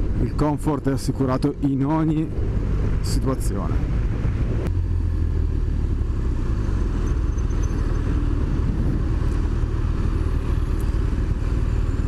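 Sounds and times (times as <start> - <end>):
wind noise: 6.6 - 12.0.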